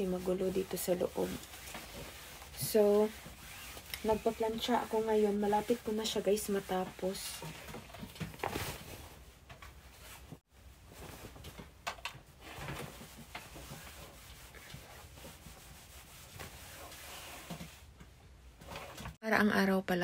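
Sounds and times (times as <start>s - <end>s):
iron rubbing over fabric: 0.0s - 7.7s, 12.7s - 17.8s.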